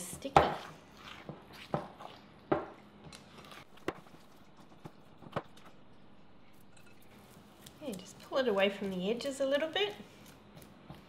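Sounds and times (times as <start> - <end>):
dough squelching: 0.0 - 5.8.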